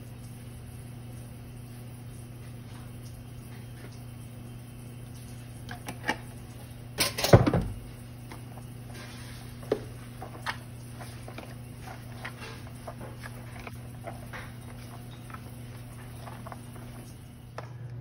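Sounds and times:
steady low hum: 0.0s - 18.0s
clatter of things on counter: 7.0s - 7.8s.

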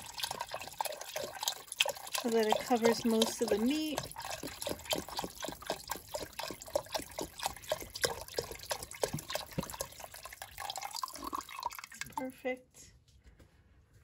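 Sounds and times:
water pouring into a pot: 0.0s - 12.3s.

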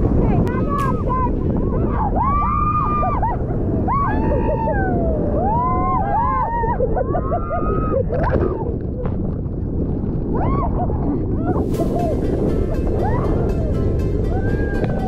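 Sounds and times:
waves breaking: 0.0s - 15.0s
wind on microphone: 0.0s - 15.0s
women shrieking: 1.8s - 8.2s
women laughing: 6.2s - 8.2s.

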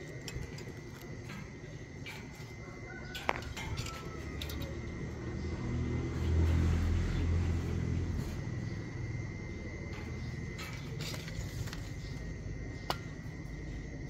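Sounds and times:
low engine hum: 3.6s - 11.6s.

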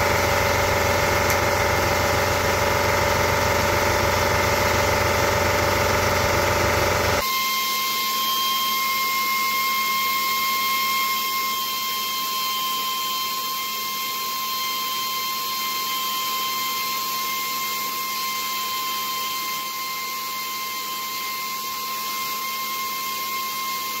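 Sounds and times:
belt sander whine: 0.0s - 24.0s.

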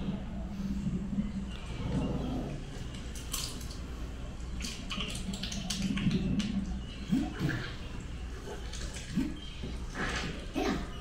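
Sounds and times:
steady low hum: 0.0s - 11.0s
water bubbling and dripping: 2.5s - 10.5s
splashes and squelches: 4.6s - 7.8s.

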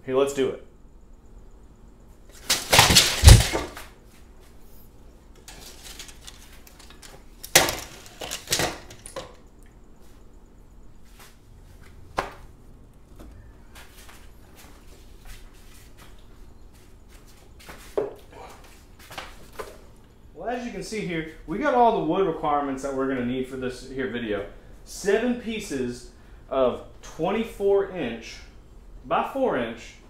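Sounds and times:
wooden boards clattering: 2.4s - 3.9s, 5.4s - 9.4s.

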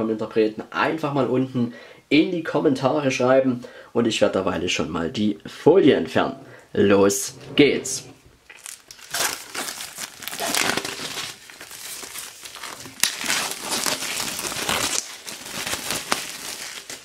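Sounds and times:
plastic shrink-wrap crinkling: 8.4s - 17.0s
plastic wrap snapping: 8.5s - 17.0s.

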